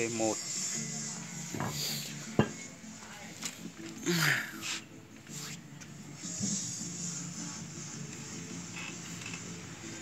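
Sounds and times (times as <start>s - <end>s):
background music: 0.0s - 10.0s.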